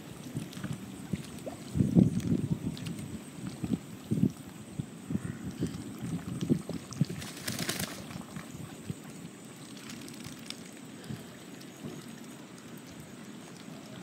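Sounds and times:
ducks splashing in water: 5.2 - 14.0.

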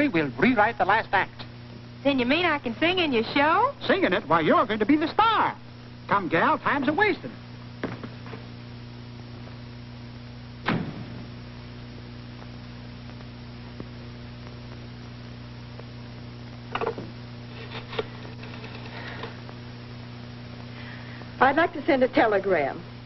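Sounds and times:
film soundtrack hum and hiss: 0.0 - 23.0
sharp knock: 10.6 - 11.3.

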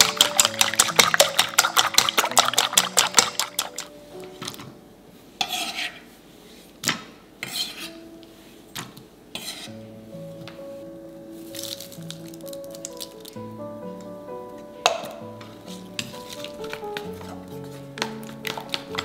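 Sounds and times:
chopsticks beating eggs in metal bowl: 0.0 - 3.9, 15.7 - 19.0
quiet background music: 0.0 - 19.0.

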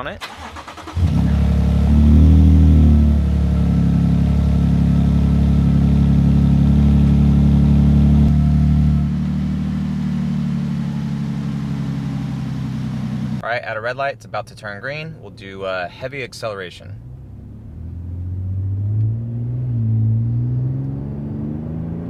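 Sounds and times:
engine cold start revving: 0.2 - 2.4
engine idling: 3.0 - 13.4.

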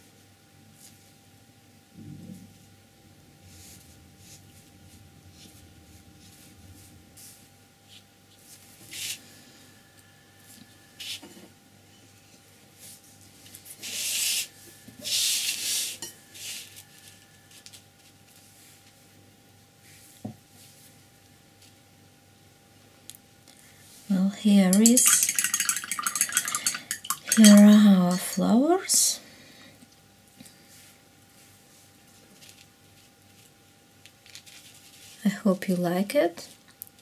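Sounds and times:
paper scraping on tabletop: 12.8 - 18.9.

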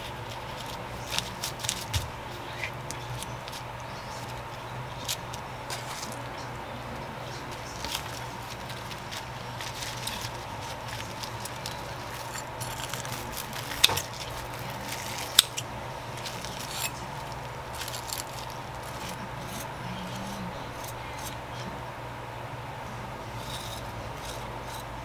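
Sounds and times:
rustling of sliced vegetables: 0.0 - 21.4
steady low hum: 0.0 - 25.0.

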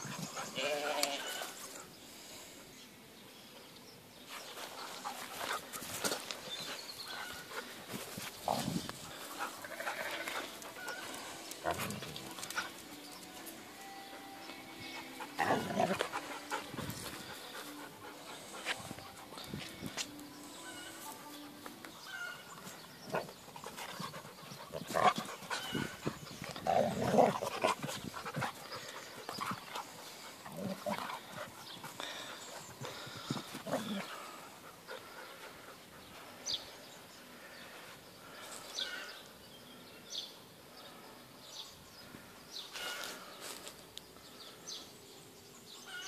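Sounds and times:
paws scuffling: 4.3 - 13.6
dogs making low play noises: 4.5 - 19.6, 22.5 - 37.1.

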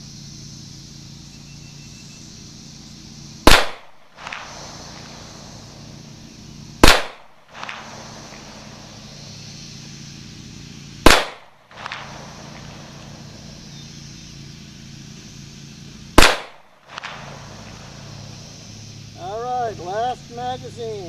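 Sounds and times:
pistol shots: 3.4 - 5.2, 6.8 - 8.8, 11.0 - 12.8, 16.2 - 17.5.

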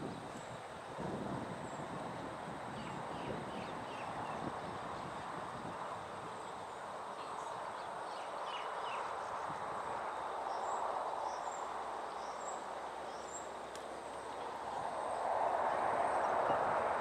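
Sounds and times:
outdoor background noise: 0.0 - 17.0
faint birds chirping: 2.6 - 16.9.

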